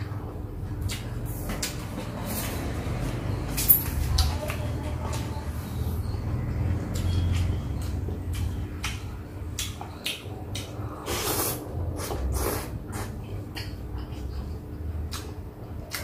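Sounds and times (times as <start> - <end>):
slurping noodles: 10.9 - 13.2.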